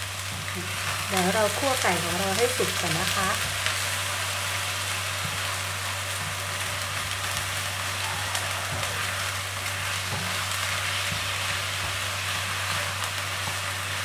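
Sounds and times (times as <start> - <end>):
chicken sizzling in hot oil: 0.0 - 14.0
spatula stirring: 5.0 - 14.0.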